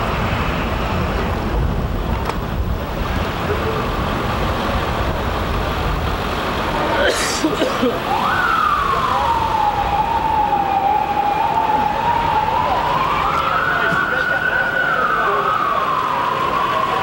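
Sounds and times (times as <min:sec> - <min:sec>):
street noise: 0:00.0 - 0:17.0
emergency siren wailing: 0:07.9 - 0:17.0.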